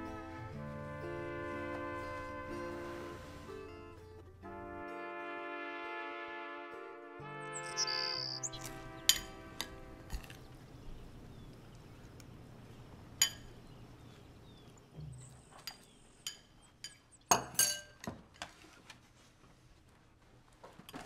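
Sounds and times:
dishes clinking: 13.2s - 13.6s, 15.6s - 18.1s.

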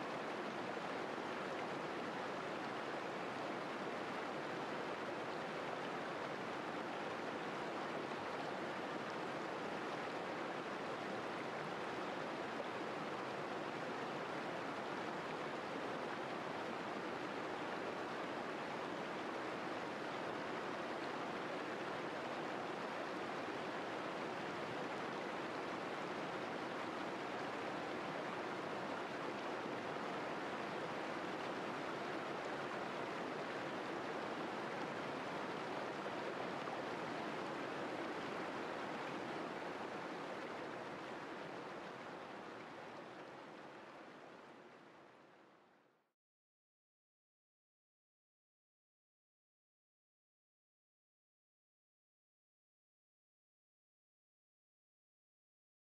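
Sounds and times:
river rushing over rocks: 0.1s - 44.9s.

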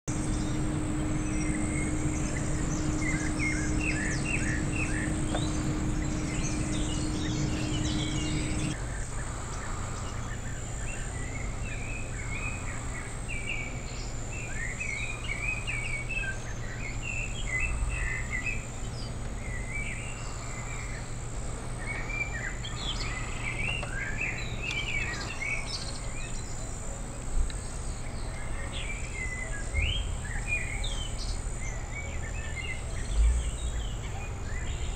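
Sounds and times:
low steady hum: 0.0s - 34.9s
songbirds chirping: 0.0s - 34.9s.

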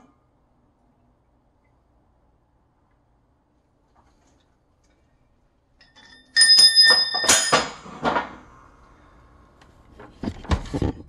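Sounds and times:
steel plate clanking and ringing: 5.8s - 7.8s.

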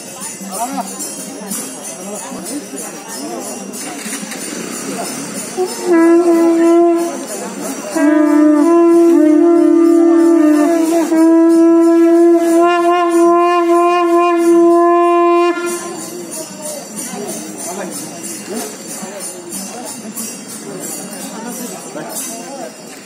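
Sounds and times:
second lower horn: 5.6s - 16.0s
horn blowing long notes: 5.6s - 16.2s.

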